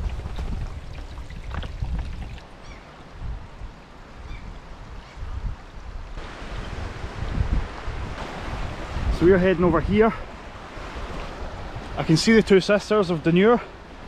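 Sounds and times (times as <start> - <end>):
plastic bottle filling with water: 0.0 - 2.5
stream trickling over rock: 0.0 - 2.6.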